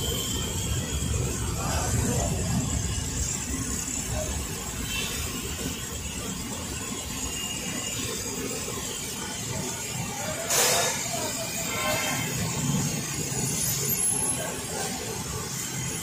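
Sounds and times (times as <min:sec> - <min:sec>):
oil sizzling while deep-frying: 0:04.0 - 0:14.4.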